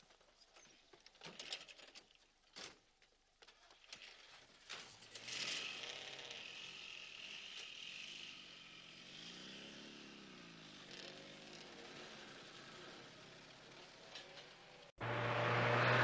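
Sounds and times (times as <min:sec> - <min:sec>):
car engine pulling away: 0:05.1 - 0:16.0.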